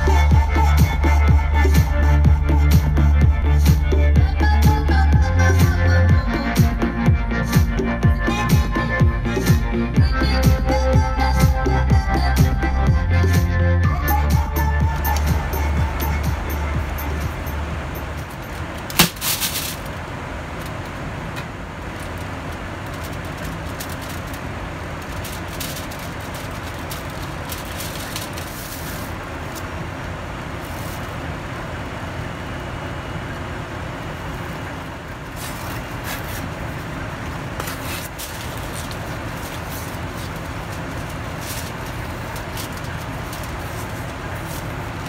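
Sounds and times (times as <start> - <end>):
airliner cabin noise: 0.0 - 45.0
packaging crinkling: 22.8 - 24.4, 25.0 - 29.6, 37.6 - 45.0.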